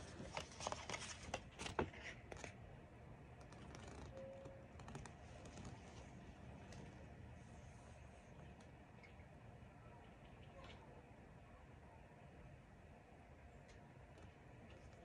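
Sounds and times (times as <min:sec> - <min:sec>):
paper crinkling and rustling: 0:00.0 - 0:02.6, 0:03.4 - 0:07.0.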